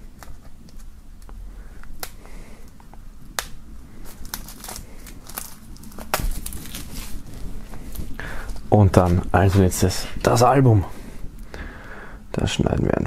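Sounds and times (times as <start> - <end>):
plastic film crinkling and tearing: 0.0 - 10.4.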